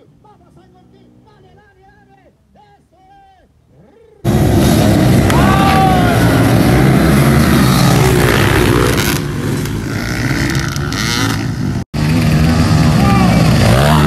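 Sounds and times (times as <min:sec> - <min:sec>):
dirt bikes revving: 0:03.7 - 0:14.0.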